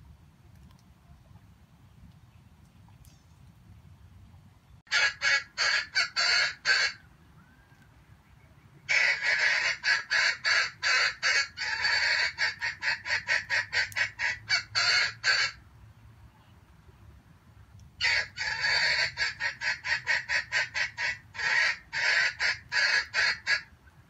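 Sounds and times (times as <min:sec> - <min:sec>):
junglefowl cackling: 0:04.9 - 0:07.9, 0:08.8 - 0:15.6, 0:18.0 - 0:23.8.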